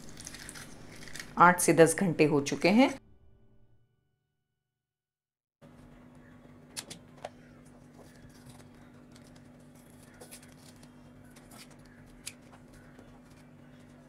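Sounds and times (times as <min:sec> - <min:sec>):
low hum: 0:00.0 - 0:04.1
paper peeling: 0:07.6 - 0:14.0
scissors snipping paper: 0:07.9 - 0:14.0.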